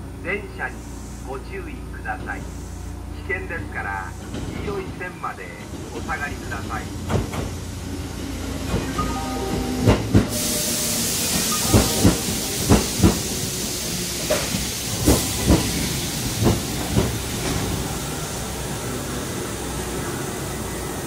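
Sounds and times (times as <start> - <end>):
train hiss: 0.3 - 21.0
wheels clacking over rail joint: 7.0 - 7.6, 11.3 - 17.8.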